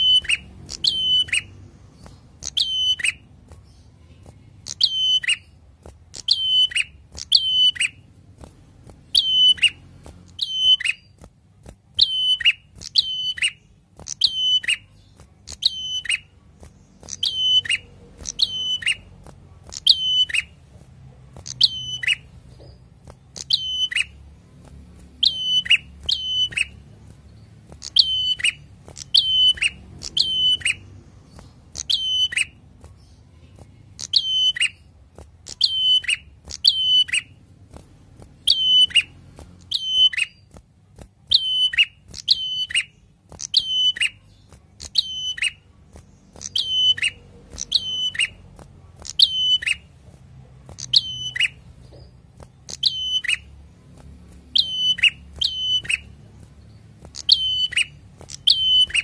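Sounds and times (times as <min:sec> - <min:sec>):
bird singing sharp ringing notes: 0:02.4 - 0:03.2.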